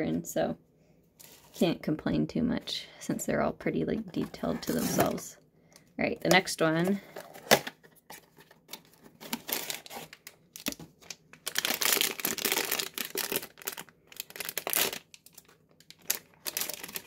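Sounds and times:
foil bag crinkling and tearing: 8.9 - 17.0.

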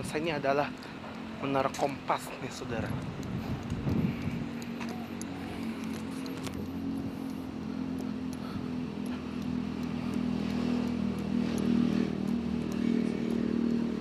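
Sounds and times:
light ticks and rattles: 0.0 - 14.0
small engine running: 2.6 - 14.0.

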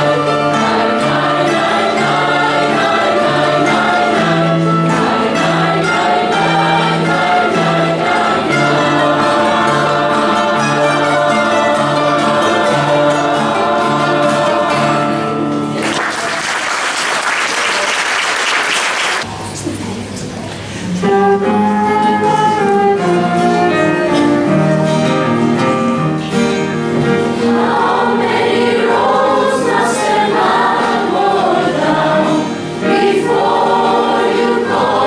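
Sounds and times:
choir singing: 0.0 - 16.0, 22.2 - 35.0
guitar and keyboard: 0.0 - 16.0, 20.0 - 35.0
audience applauding: 15.7 - 19.3.

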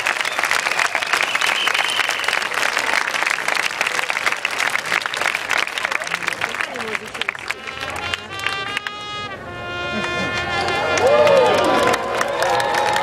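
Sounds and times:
large crowd applauding: 0.0 - 9.0, 9.9 - 13.0.

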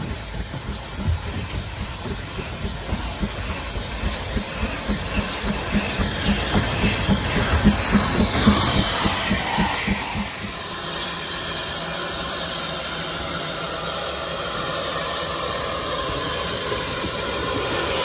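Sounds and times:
steam hissing: 0.0 - 18.0
steam locomotive chuffing: 0.0 - 18.0.

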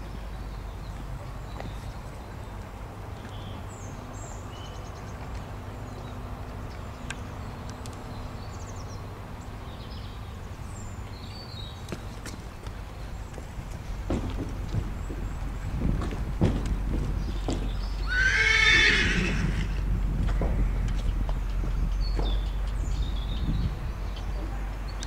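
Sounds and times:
steady low rumble: 0.0 - 18.1, 19.1 - 25.0
small birds chirping: 0.0 - 25.0
faint knocks: 13.4 - 17.8.

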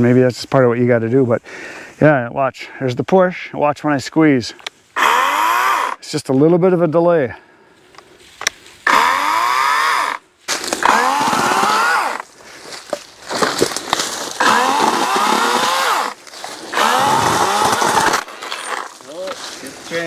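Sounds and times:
electric chainsaw motor whine: 5.0 - 6.0, 8.9 - 10.2, 10.8 - 12.2, 14.4 - 18.8.

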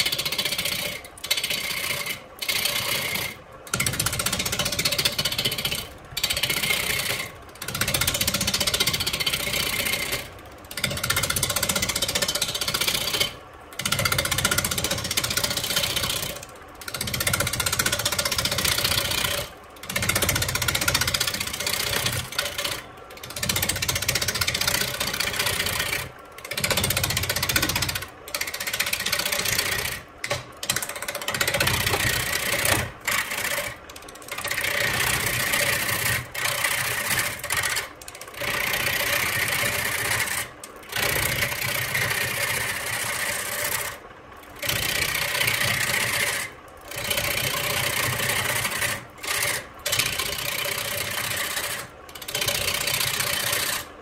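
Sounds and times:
wood lathe cutting wood: 0.0 - 3.8, 17.0 - 44.0, 44.6 - 53.9.

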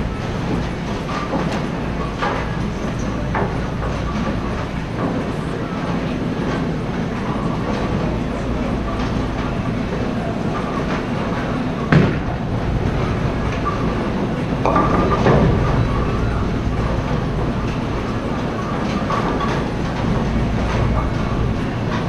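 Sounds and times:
bowling pins clattering: 7.4 - 22.0
bowling balls rolling: 7.8 - 22.0.

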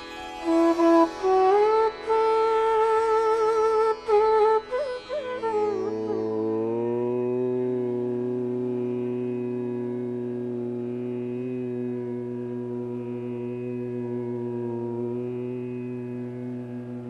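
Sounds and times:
long low drone: 6.2 - 17.0.

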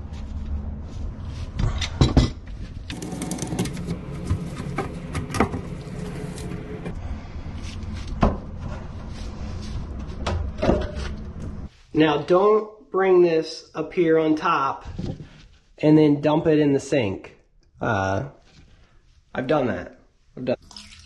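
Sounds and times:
steady low hum: 0.0 - 11.8
plastic pipes scraping and rattling: 2.0 - 7.0.

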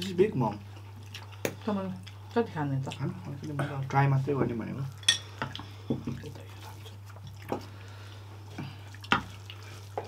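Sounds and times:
wet eating smacks: 8.6 - 10.0.

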